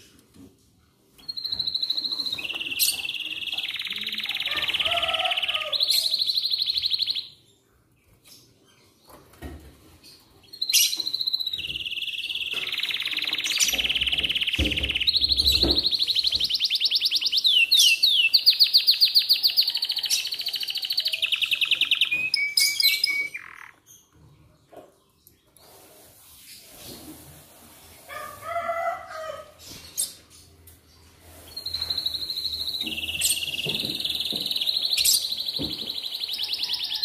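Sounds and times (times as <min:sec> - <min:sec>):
canary singing trills: 0:01.2 - 0:07.4, 0:10.4 - 0:23.9, 0:31.3 - 0:37.0.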